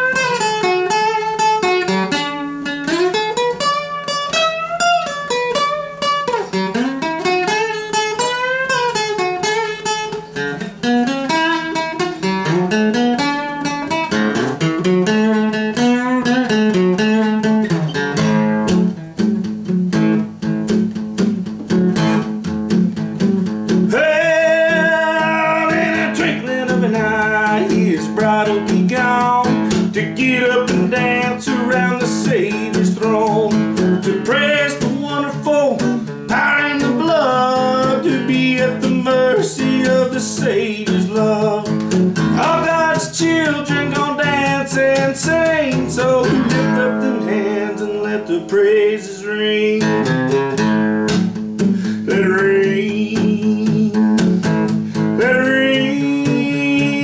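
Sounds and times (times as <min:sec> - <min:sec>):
man singing: 0:00.0 - 0:01.5, 0:15.1 - 0:17.1, 0:23.8 - 0:50.4, 0:51.8 - 0:57.0
fingerpicked acoustic guitar: 0:00.0 - 0:57.0.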